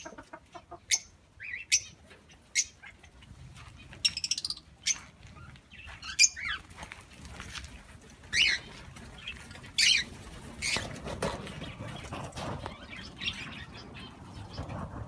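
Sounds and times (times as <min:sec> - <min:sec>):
birds chirping calls: 0:00.0 - 0:15.0
wings flapping: 0:06.6 - 0:13.2.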